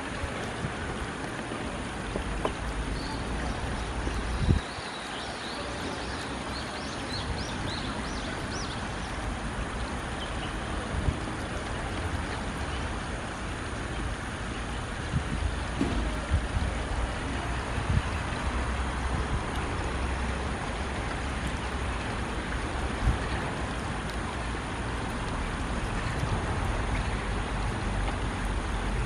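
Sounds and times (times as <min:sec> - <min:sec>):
stream water rushing: 0:00.0 - 0:29.0
dull thump: 0:15.7 - 0:16.2.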